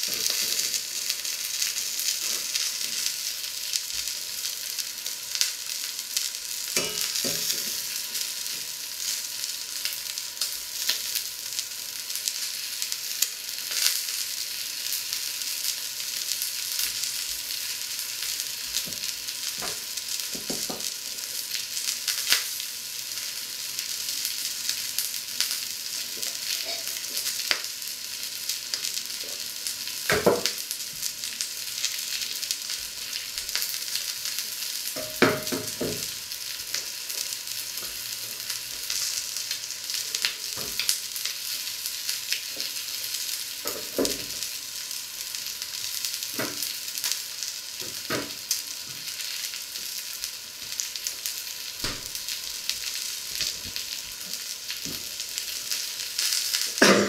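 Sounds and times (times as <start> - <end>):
meat sizzling in a pan: 0.0 - 57.0.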